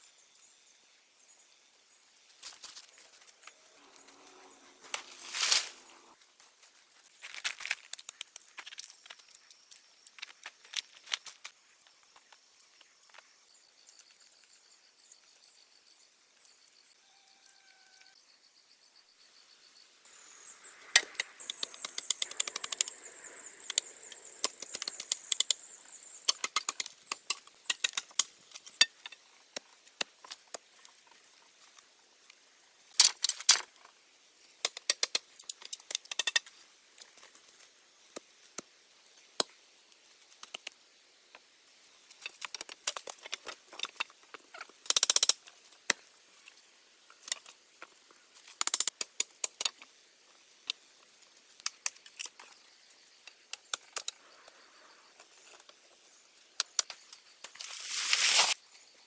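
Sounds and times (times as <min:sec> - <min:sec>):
rustling in dead leaves: 0:02.4 - 0:09.2, 0:57.5 - 0:58.6
bamboo poles knocking and clattering: 0:26.3 - 0:31.2, 0:33.0 - 0:33.9, 0:34.6 - 0:37.3, 0:42.1 - 0:46.1
soft hiss: 0:54.1 - 0:59.0.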